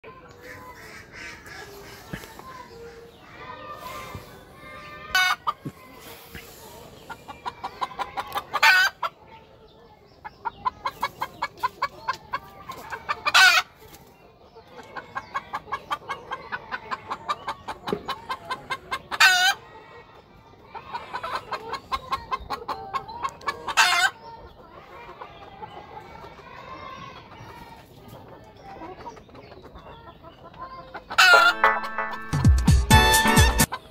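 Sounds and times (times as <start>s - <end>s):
fowl calling with squawks: 0.4s - 2.2s, 31.0s - 32.3s.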